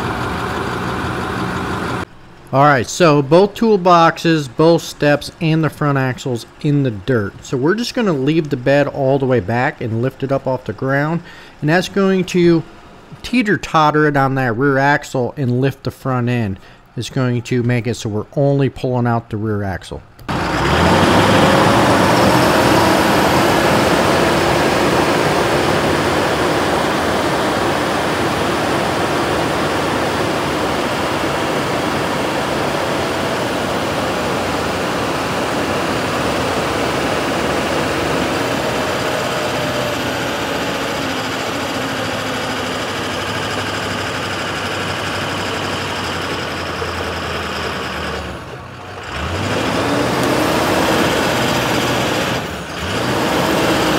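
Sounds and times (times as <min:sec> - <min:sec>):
truck engine running under load: 0:00.0 - 0:15.6, 0:20.2 - 0:53.9
loud rushing noise: 0:20.3 - 0:45.1.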